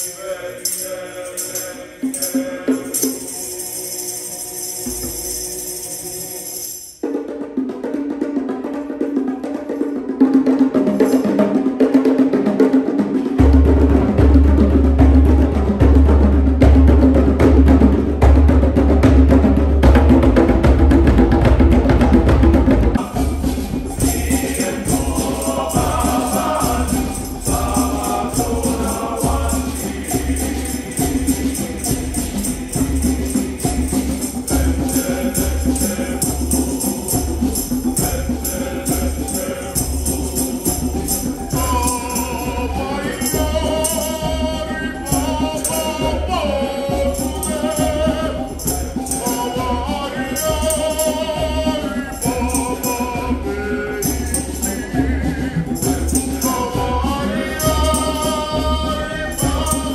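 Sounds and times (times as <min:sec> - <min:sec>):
men's choir singing in harmony: 0:00.0 - 0:06.8, 0:10.2 - 0:59.9
steady percussive beat: 0:00.0 - 0:59.9
higher melodic voices: 0:13.6 - 0:59.9.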